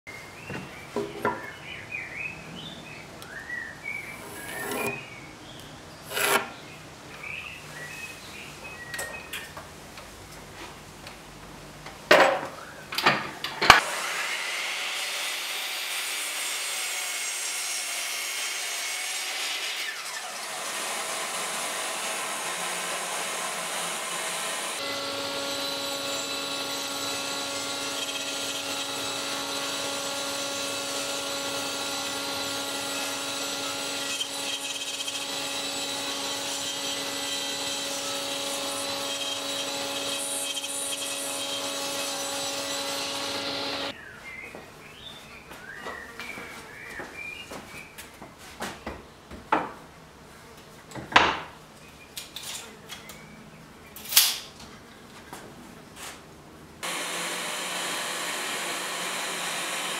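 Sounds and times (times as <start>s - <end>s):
table saw humming: 4.1s - 5.2s, 6.0s - 6.6s, 13.8s - 44.0s, 56.8s - 59.9s
mitre saw cutting wood: 4.2s - 5.1s, 6.0s - 6.6s, 13.8s - 43.9s, 56.8s - 59.9s.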